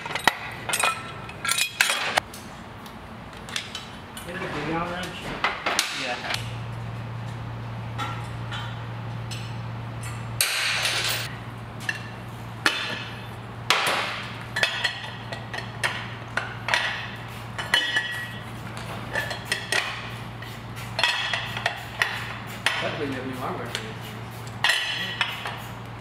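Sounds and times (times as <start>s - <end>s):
metal tools clinking: 0.0s - 2.2s, 10.8s - 11.3s.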